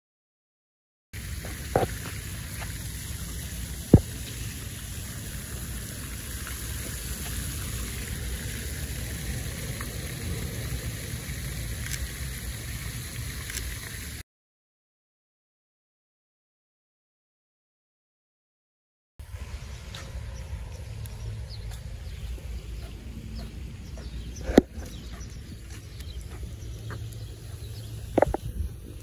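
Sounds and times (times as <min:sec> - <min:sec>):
fountain water splashing: 0:01.2 - 0:14.2, 0:19.2 - 0:29.0
wind rumbling on microphone: 0:19.2 - 0:29.0.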